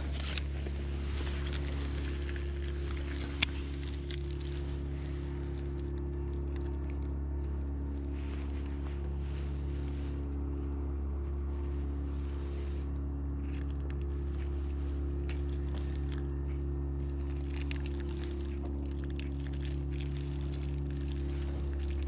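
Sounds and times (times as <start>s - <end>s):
low machine hum: 0.0s - 22.0s
light clicks and rattles: 13.0s - 22.0s.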